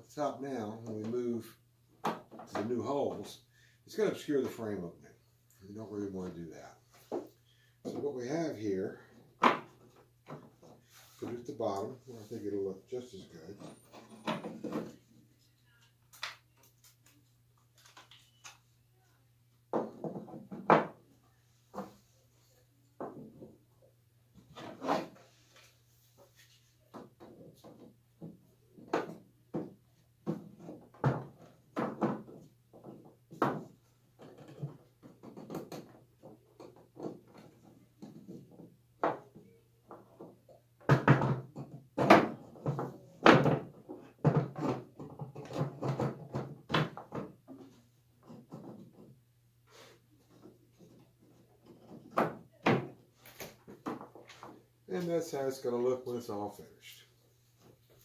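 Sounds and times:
wooden frame knocking and clacking: 0:19.7 - 0:21.0.

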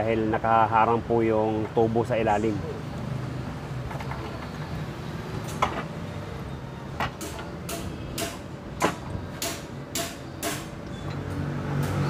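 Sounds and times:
metallic knocks and clicks: 0:07.0 - 0:12.0.

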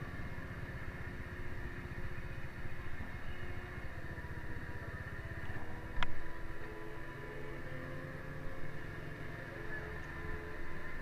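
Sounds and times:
motorcycle engine idling: 0:00.0 - 0:06.6.

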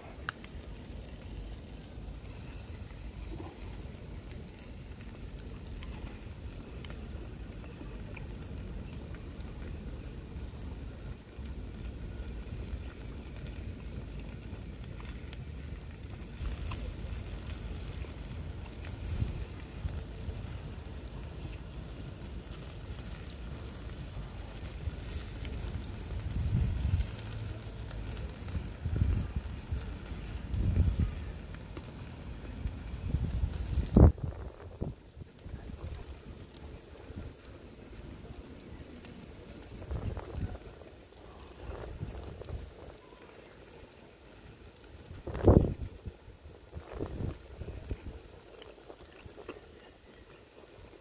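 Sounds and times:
wind buffeting microphone: 0:24.6 - 0:31.4, 0:32.1 - 0:36.4, 0:39.2 - 0:43.0, 0:45.0 - 0:49.4.

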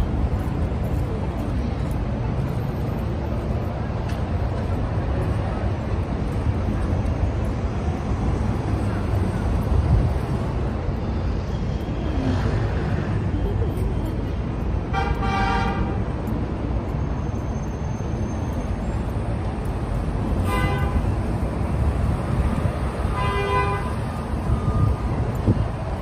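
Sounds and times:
street traffic: 0:00.0 - 0:26.0
vehicle horn honks: 0:14.9 - 0:15.9, 0:20.4 - 0:21.0, 0:23.1 - 0:23.9.

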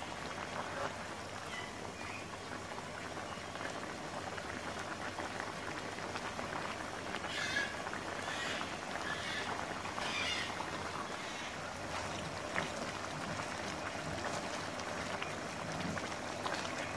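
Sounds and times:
sauce bubbling and crackling in a pan: 0:00.0 - 0:16.9.

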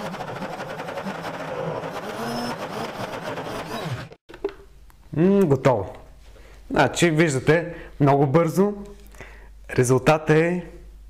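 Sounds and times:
blender motor running: 0:00.0 - 0:04.2.

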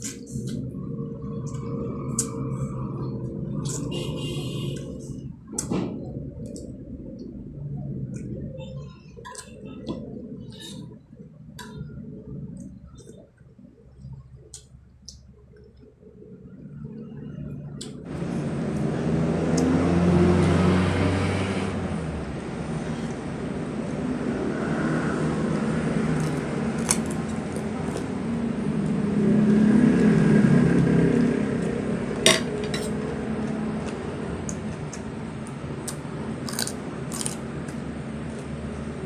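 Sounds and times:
steady low hum: 0:00.0 - 0:39.0
chewing crisp radish: 0:26.0 - 0:29.0, 0:33.4 - 0:38.9.

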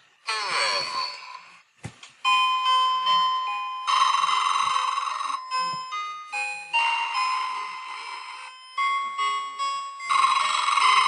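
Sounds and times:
electronic beeping toy melody: 0:02.3 - 0:11.0.

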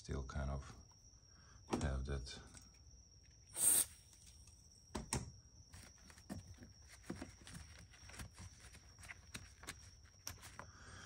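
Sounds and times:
faint high whine: 0:00.0 - 0:11.0
handling clicks and rustles: 0:05.7 - 0:10.7.

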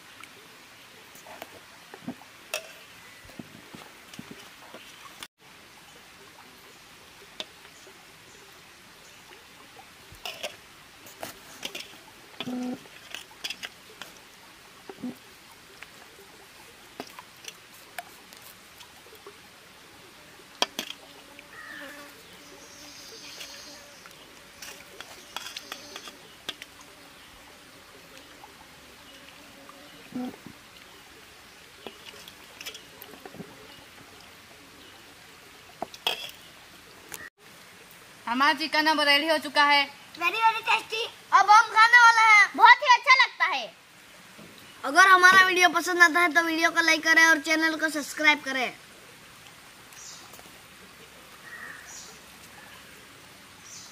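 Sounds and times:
faint steady hiss: 0:00.0 - 0:53.9
ladle clatter: 0:35.8 - 0:36.4.

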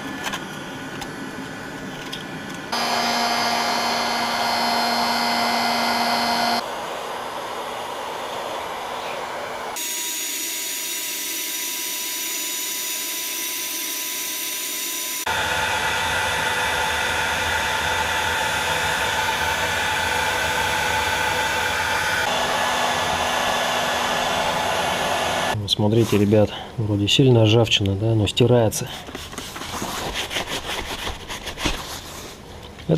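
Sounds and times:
heat gun blowing air: 0:02.7 - 0:06.7, 0:09.7 - 0:25.6.

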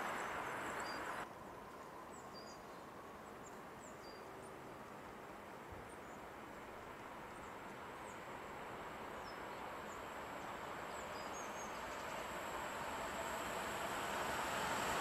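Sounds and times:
train wheels rumbling on rails: 0:00.0 - 0:01.2, 0:07.1 - 0:15.0.

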